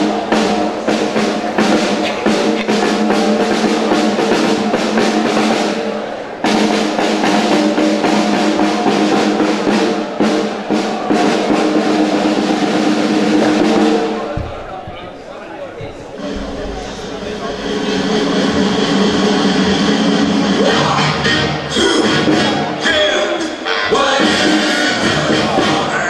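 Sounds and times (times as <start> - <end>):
marching snare drum rolls: 0.0 - 22.9.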